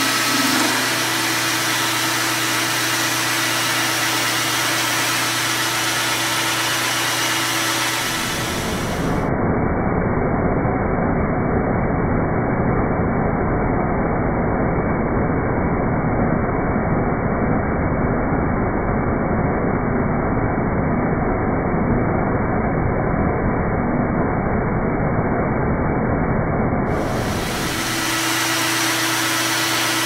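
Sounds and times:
coolant mist spraying: 0:00.0 - 0:09.1, 0:26.9 - 0:30.0
metal lathe cutting: 0:00.0 - 0:09.2, 0:26.9 - 0:30.0.

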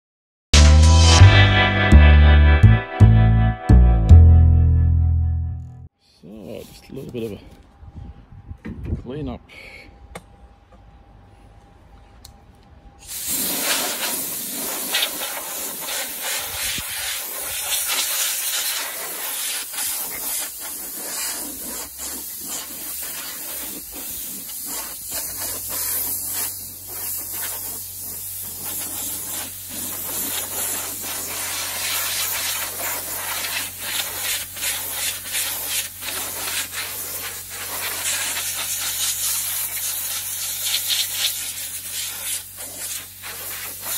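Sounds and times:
compressed air blowgun hissing: 0:13.0 - 0:43.9.

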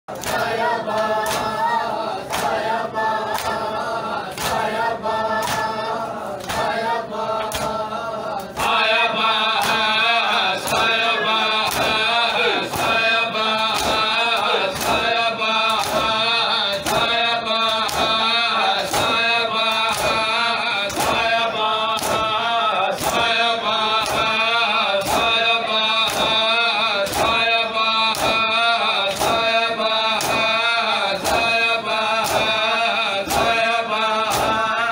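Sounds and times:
men chanting together: 0:00.1 - 0:34.9
hands slapping chests: 0:02.2 - 0:03.7, 0:04.3 - 0:04.8, 0:05.4 - 0:05.8, 0:06.4 - 0:08.9, 0:10.6 - 0:16.2, 0:16.8 - 0:24.4, 0:25.0 - 0:34.7.

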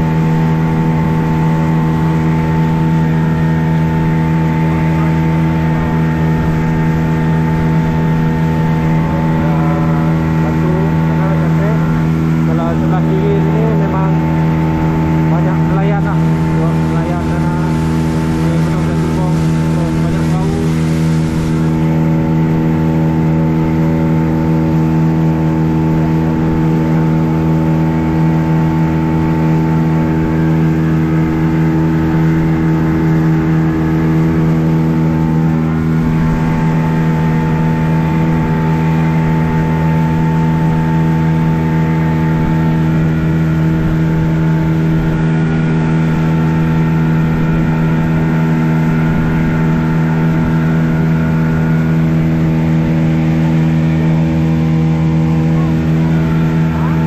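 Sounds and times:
outboard motor droning: 0:00.0 - 0:57.0
rushing noise: 0:16.0 - 0:22.7.

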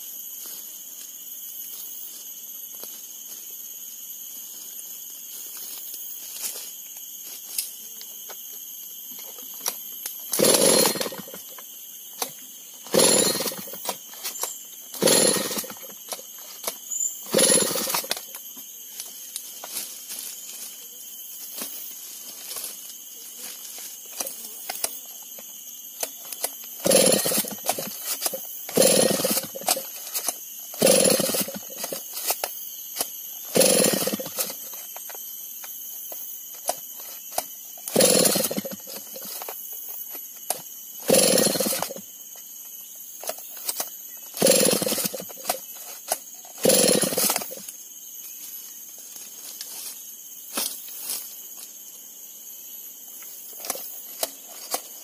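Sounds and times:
chainsaw recoil starter pulls: 0:10.3 - 0:11.6, 0:12.9 - 0:18.3, 0:26.0 - 0:32.4, 0:33.5 - 0:34.8, 0:36.6 - 0:39.5, 0:41.0 - 0:42.0, 0:43.2 - 0:47.6.

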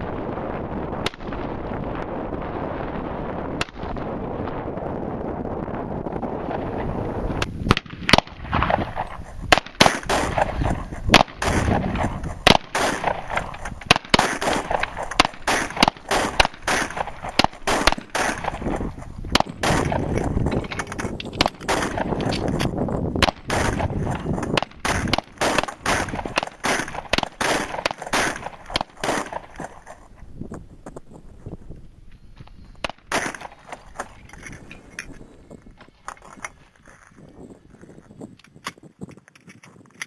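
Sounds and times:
handgun shots: 0:07.7 - 0:29.7.

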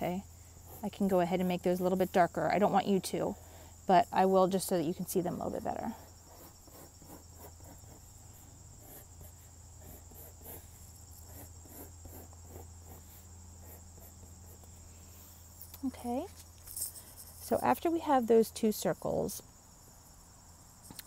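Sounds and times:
faint high-pitched whine: 0:00.0 - 0:21.0
pencil scratching on paper: 0:06.3 - 0:08.1, 0:08.8 - 0:14.7.

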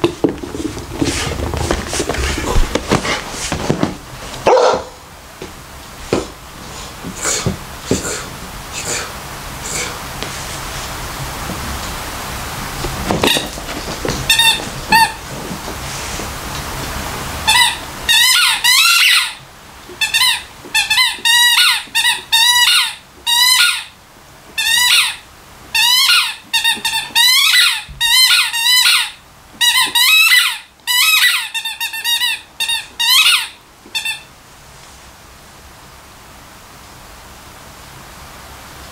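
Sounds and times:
squeaky dog toy squeaking: 0:14.3 - 0:15.2, 0:17.5 - 0:19.4, 0:20.0 - 0:23.9, 0:24.6 - 0:25.2, 0:25.8 - 0:34.3.

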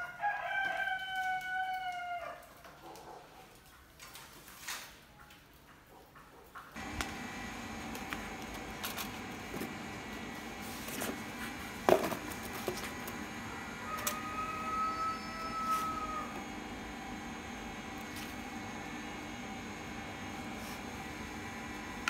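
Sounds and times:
steady background hum: 0:06.6 - 0:22.0.

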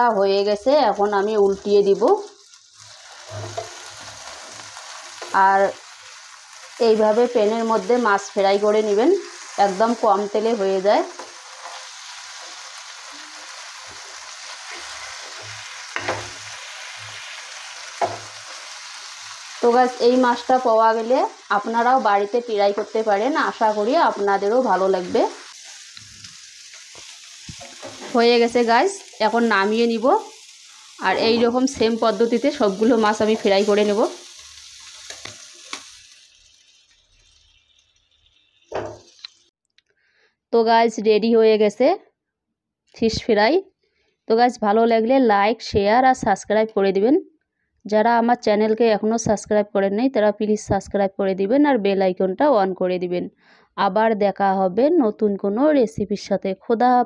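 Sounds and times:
fish sizzling in a pan: 0:00.5 - 0:39.5
spatula stirring in a pan: 0:02.6 - 0:06.8, 0:11.0 - 0:19.6, 0:25.3 - 0:29.3, 0:30.2 - 0:39.2.

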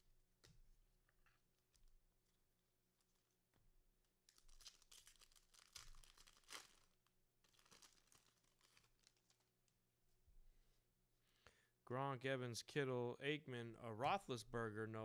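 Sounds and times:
wrapper tearing and crinkling: 0:04.3 - 0:09.5.

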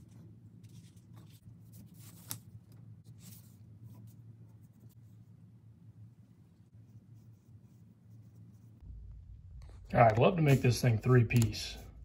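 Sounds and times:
low steady hum: 0:00.0 - 0:12.0
pencil scratching on paper: 0:06.7 - 0:08.8.

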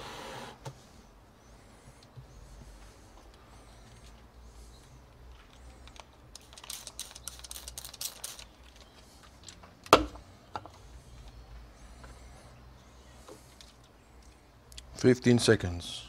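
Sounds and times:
small objects clicking and rustling: 0:05.3 - 0:10.0.

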